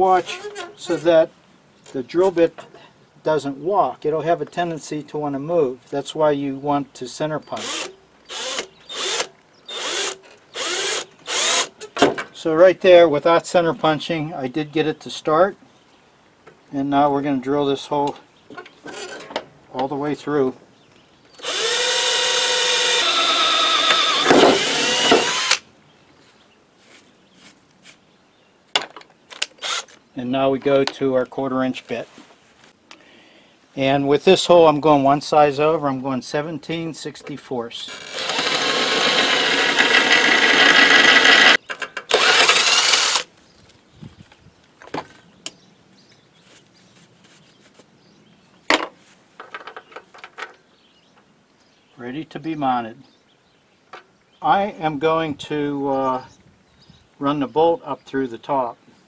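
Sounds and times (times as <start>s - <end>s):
cordless drill whining: 7.6s - 11.7s, 21.4s - 25.6s, 29.3s - 30.0s, 37.9s - 43.3s
drill bit grinding through metal: 7.6s - 11.7s, 21.4s - 25.6s, 37.9s - 43.2s.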